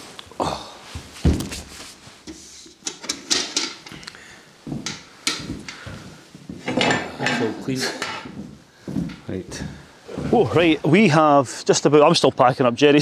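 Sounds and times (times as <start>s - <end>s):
metal bucket and gear clattering: 2.8s - 4.0s.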